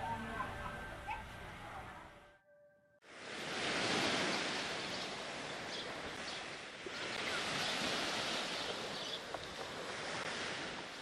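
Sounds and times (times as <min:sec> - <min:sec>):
small waves breaking on shore: 0:03.0 - 0:11.0.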